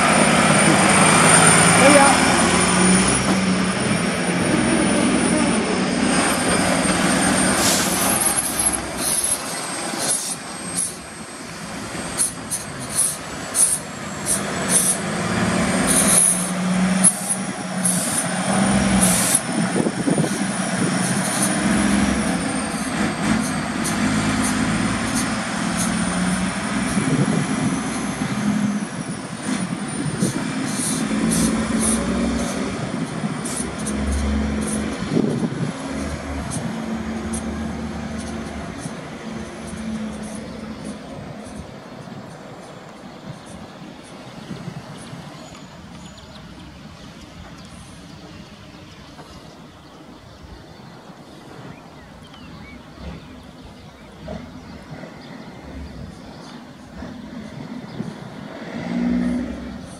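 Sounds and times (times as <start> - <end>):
truck diesel engine driving off: 0.0 - 50.4, 51.1 - 59.9
air brake hisses: 7.5 - 11.0, 12.2 - 15.0.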